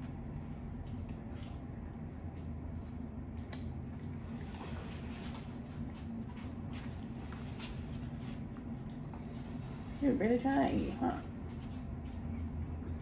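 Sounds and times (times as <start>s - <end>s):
close chewing: 0.0s - 10.0s
low hum: 0.0s - 13.0s.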